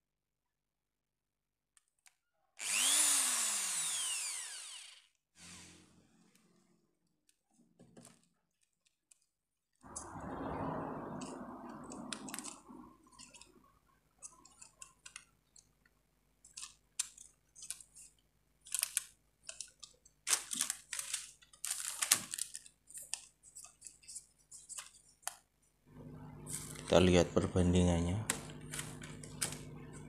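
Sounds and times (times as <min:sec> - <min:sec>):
soft rushing noise: 0:09.9 - 0:13.0.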